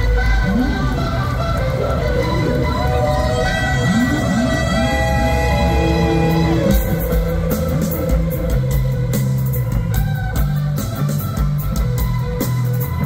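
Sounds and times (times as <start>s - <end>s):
bass line: 0.0s - 13.0s
electric guitar: 0.0s - 13.0s
drums and cymbals: 3.9s - 13.0s.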